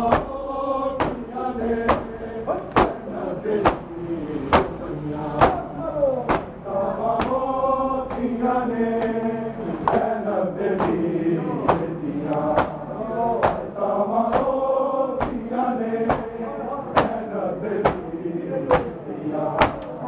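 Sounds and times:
men chanting in unison: 0:00.0 - 0:20.0
hands slapping bare chests: 0:07.2 - 0:07.4, 0:10.8 - 0:11.0, 0:13.4 - 0:13.7, 0:14.3 - 0:14.6, 0:15.2 - 0:15.4, 0:16.1 - 0:16.3.

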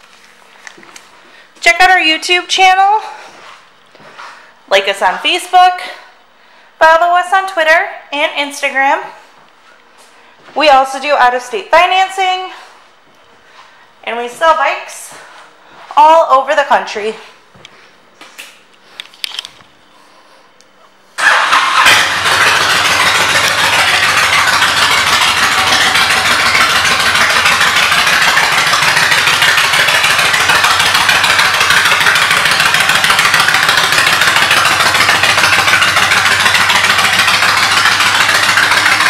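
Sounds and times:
motorcycle engine starting and idling: 0:21.2 - 0:39.0.

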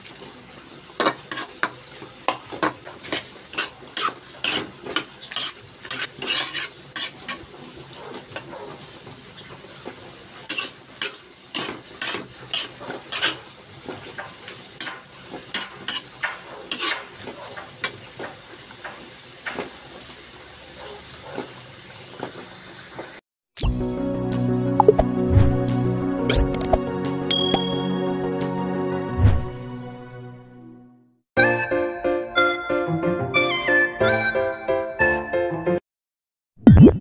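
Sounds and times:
food sizzling: 0:00.0 - 0:23.2
metal spatula scraping a wok: 0:01.0 - 0:08.5, 0:10.4 - 0:13.5, 0:14.8 - 0:18.0.

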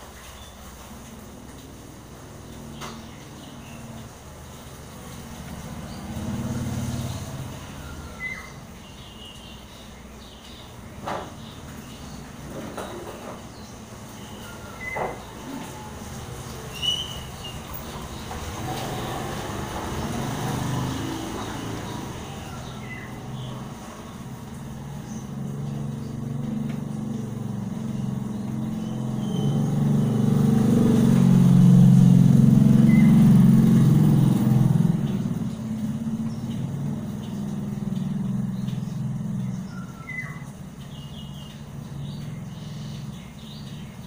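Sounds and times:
motorcycle passing: 0:01.2 - 0:44.0.

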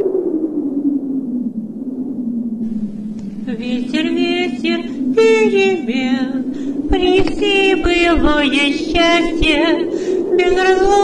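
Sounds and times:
low drone: 0:00.0 - 0:11.0
wordless voices singing: 0:02.7 - 0:11.0.

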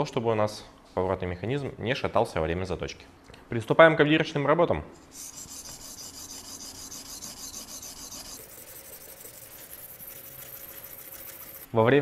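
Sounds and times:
sharpening stone scraping knife: 0:05.1 - 0:08.4.

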